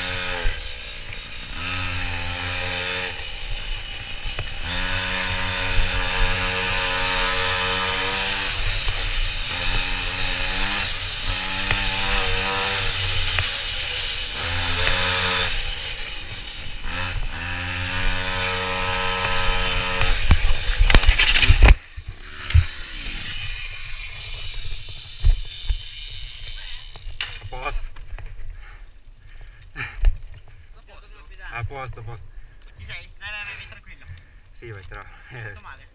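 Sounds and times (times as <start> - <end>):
small motorbike engine revving: 0.0 - 28.8
bike crash scraping clatter: 19.3 - 28.4.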